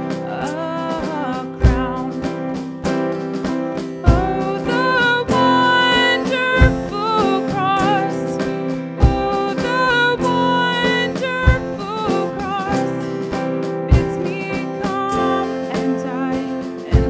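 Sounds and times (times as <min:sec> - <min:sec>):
woman singing into microphone: 0:00.0 - 0:03.2, 0:03.9 - 0:17.0
instrumental accompaniment: 0:00.0 - 0:17.0
low beat: 0:01.6 - 0:15.1.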